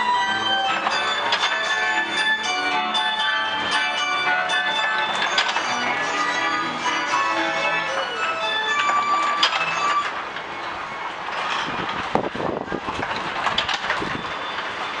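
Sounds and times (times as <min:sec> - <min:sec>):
music: 0:00.0 - 0:11.0
carousel mechanism clattering: 0:00.0 - 0:15.0.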